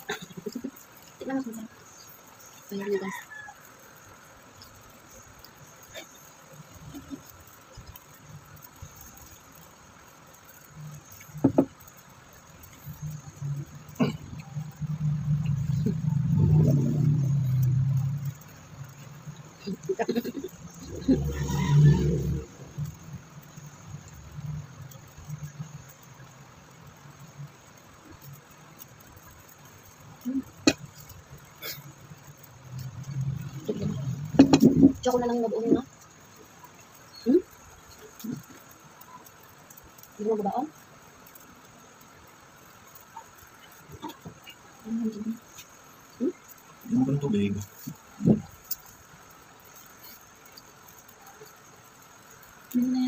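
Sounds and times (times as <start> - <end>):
faint room noise: 0.0 - 53.0
low hum: 12.7 - 27.6.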